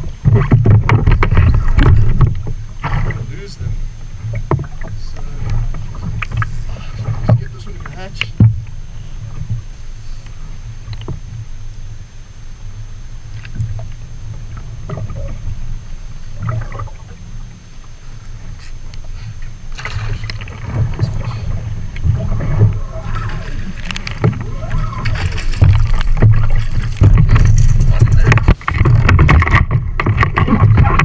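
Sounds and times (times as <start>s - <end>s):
water sloshing against kayak hull: 0.0s - 31.0s
fish splashing: 13.3s - 31.0s.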